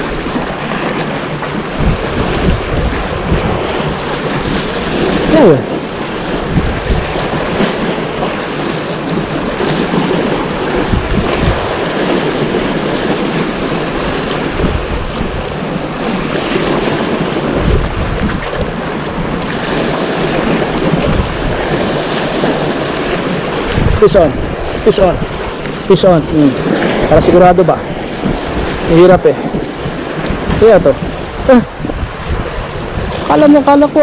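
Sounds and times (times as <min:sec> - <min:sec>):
sea waves washing in: 0:00.0 - 0:34.0
wind buffeting microphone: 0:00.0 - 0:34.0.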